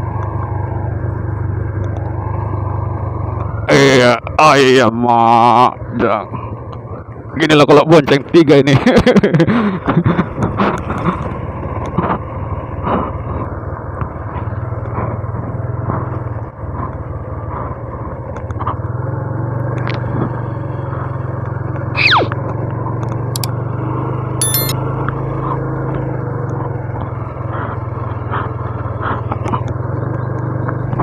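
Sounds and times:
motorcycle engine cruising: 0.0s - 7.5s, 9.7s - 31.0s
falling whistle-like sweep: 22.0s - 22.3s
clicks: 23.3s - 23.5s, 24.4s - 24.8s.

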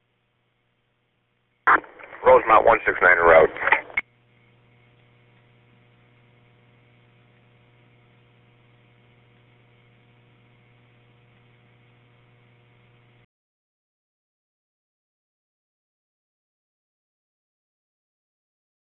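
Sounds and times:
electrical hum with hiss: 0.0s - 13.3s.

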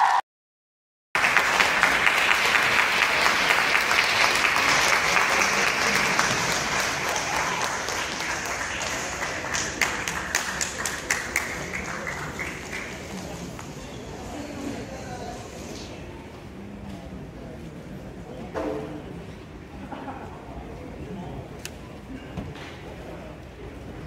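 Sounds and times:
audience applauding: 1.2s - 13.6s.

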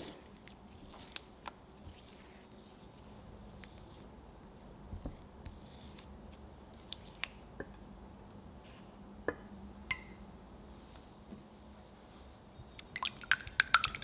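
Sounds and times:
sticky squishing of stirring: 0.0s - 7.6s.

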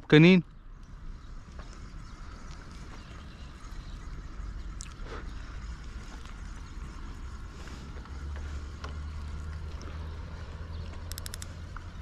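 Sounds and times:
high ticks: 0.8s - 12.0s
faint clicks: 10.8s - 12.0s.

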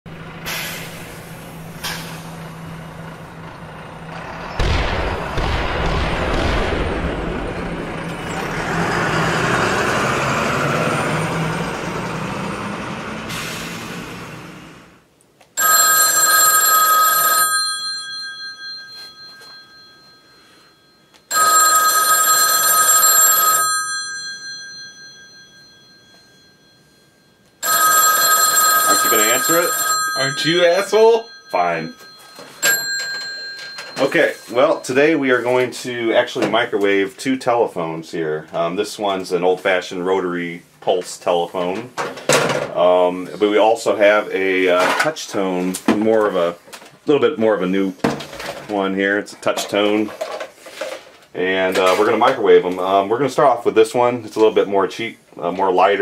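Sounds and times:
telephone bell ringing: 15.6s - 35.0s.

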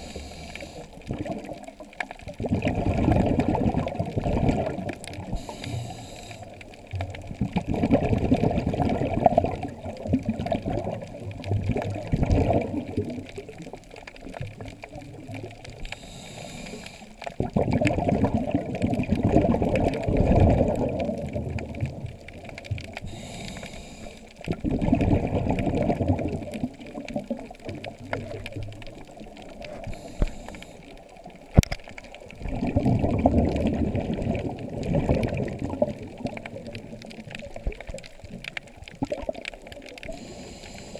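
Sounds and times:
regulator inhale hiss: 0.0s - 1.0s, 5.3s - 6.6s, 15.8s - 17.3s, 23.0s - 24.4s, 29.8s - 31.0s, 40.0s - 40.9s
exhaust bubbles underwater: 0.0s - 40.9s.

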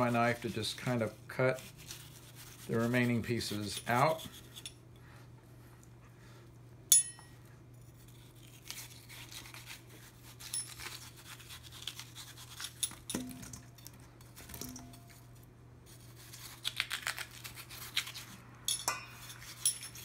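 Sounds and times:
knife scraping watermelon rind: 0.0s - 4.8s, 7.7s - 13.1s, 15.1s - 18.5s, 19.2s - 20.0s
ringing clink on metal bowl: 6.9s - 7.4s, 18.7s - 20.0s.

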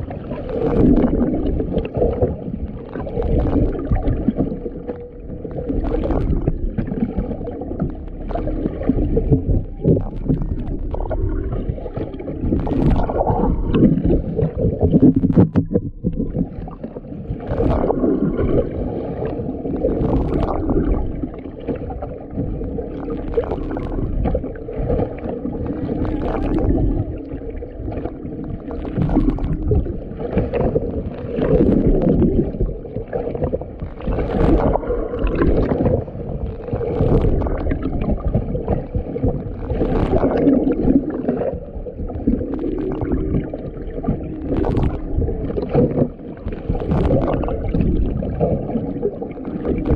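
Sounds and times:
water sloshing against camera housing: 3.2s - 16.7s.

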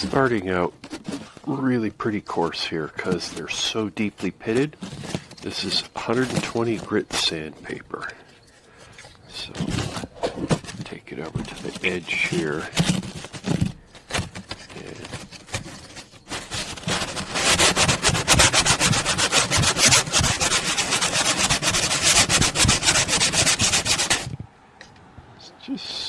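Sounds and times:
sanding on coarse sandpaper: 3.0s - 7.8s, 11.4s - 13.6s, 14.4s - 24.3s.

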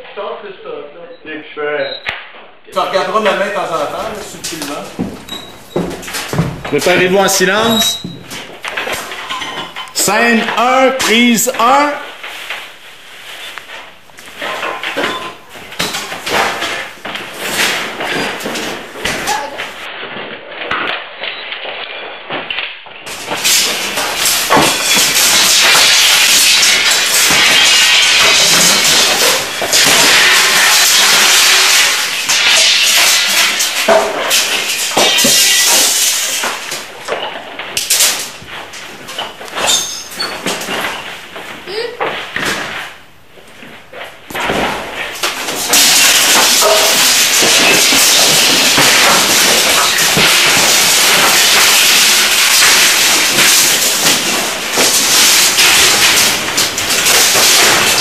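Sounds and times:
loud crashing and rattling: 2.8s - 12.7s, 13.8s - 41.4s, 42.1s - 58.0s
objects knocking and clattering: 2.8s - 12.8s, 13.4s - 21.4s, 22.3s - 58.0s.

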